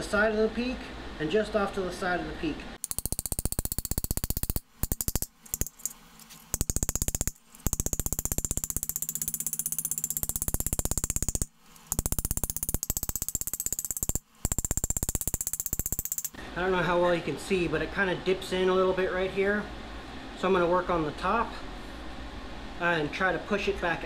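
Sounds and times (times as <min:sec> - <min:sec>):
hammer tapping on sheet metal: 0:06.6 - 0:16.3.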